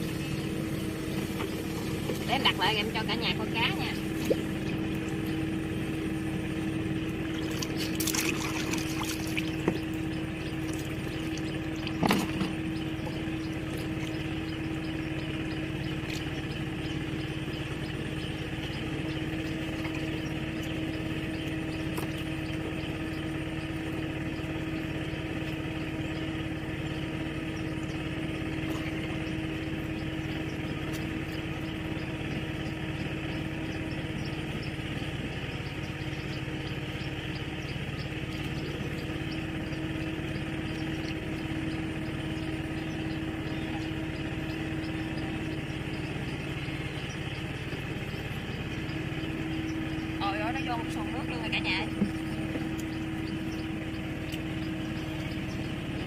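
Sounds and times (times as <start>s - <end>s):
small engine humming: 0.0s - 56.0s
water sloshing and dripping: 7.0s - 16.4s.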